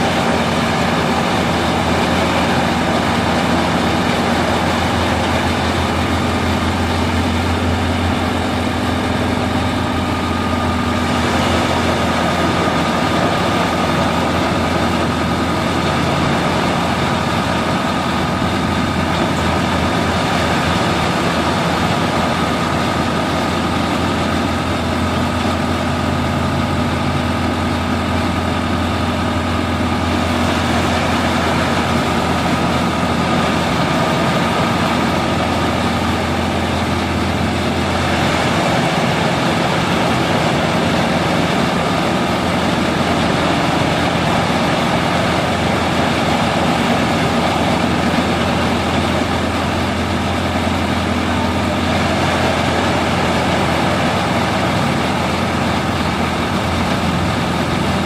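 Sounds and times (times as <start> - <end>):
forage chopper machine hum: 0.0 - 58.0
thin steady whine: 0.0 - 58.0.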